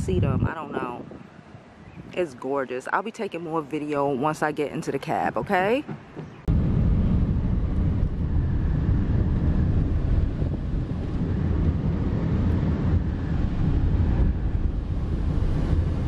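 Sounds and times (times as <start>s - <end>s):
car engine and road noise: 5.0s - 16.0s.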